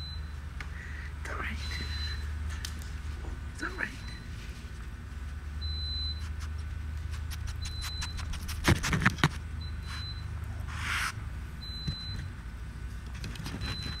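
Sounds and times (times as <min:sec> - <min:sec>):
steady low hum: 0:00.0 - 0:14.0
animal sniffing: 0:06.0 - 0:11.2.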